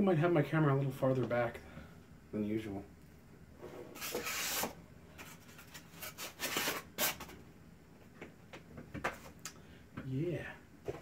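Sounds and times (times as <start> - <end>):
cardboard scraping: 3.6 - 7.3.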